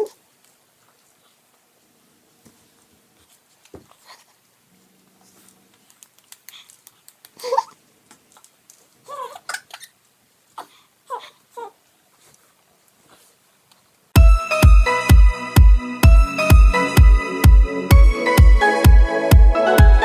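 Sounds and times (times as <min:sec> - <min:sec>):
baby laughing and squealing: 0:07.4 - 0:07.8, 0:09.1 - 0:10.0.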